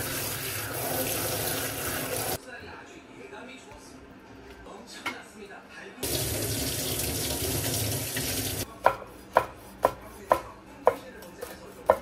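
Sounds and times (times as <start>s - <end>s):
kitchen tap running: 0.0s - 2.4s, 6.0s - 8.7s
knife chopping on wooden board: 8.8s - 12.0s.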